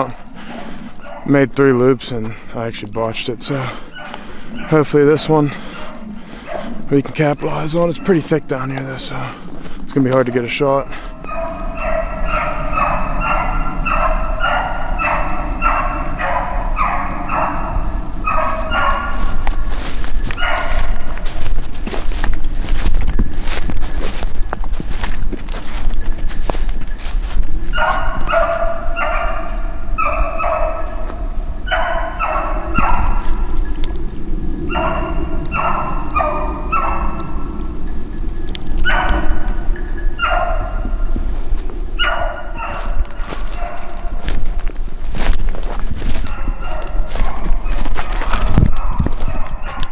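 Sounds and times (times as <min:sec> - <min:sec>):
dog baying: 0:00.0 - 0:01.3, 0:03.6 - 0:09.6, 0:10.6 - 0:22.1, 0:27.6 - 0:41.2, 0:41.8 - 0:44.6, 0:45.2 - 0:49.9
sharp crunching steps: 0:00.0 - 0:49.9
low rumble: 0:30.8 - 0:43.2.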